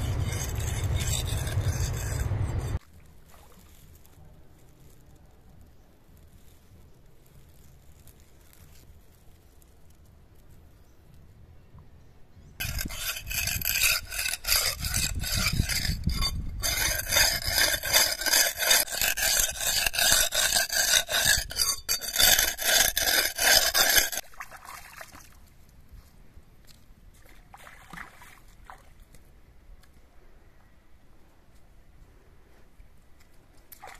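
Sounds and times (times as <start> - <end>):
knife scraping on wet rock: 0.0 - 2.8, 12.6 - 24.3.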